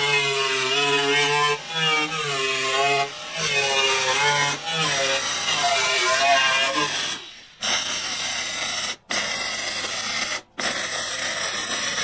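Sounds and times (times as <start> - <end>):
welder arc crackling: 3.9 - 12.0.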